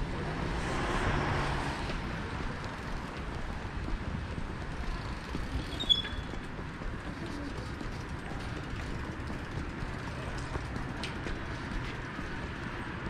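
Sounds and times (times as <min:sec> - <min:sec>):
car passing: 0:00.0 - 0:05.6
low traffic hum: 0:00.0 - 0:13.0
high-pitched squeak: 0:05.6 - 0:06.3.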